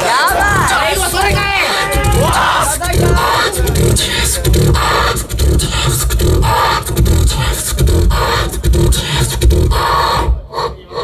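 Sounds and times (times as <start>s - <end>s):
amplified beatboxing: 0.0s - 11.0s.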